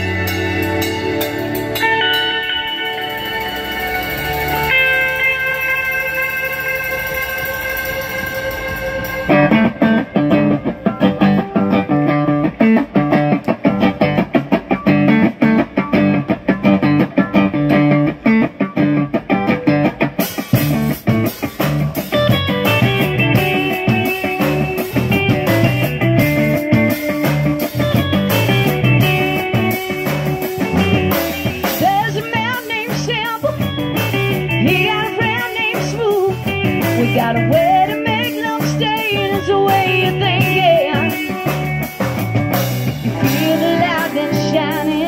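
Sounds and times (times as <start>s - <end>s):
cymbals: 0.0s - 9.9s
live rock band playing: 0.0s - 45.0s.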